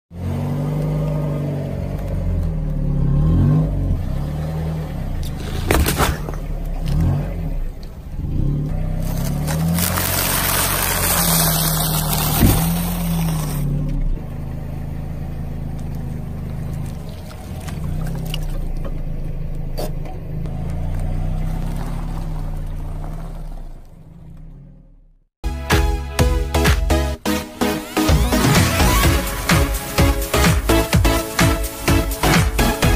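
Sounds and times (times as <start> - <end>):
car engine running low: 0.1 - 25.4
things crushed under tyre: 5.2 - 7.1, 8.9 - 14.0
watermelon crunching under tyre: 8.5 - 14.0, 15.7 - 19.5, 20.5 - 24.4.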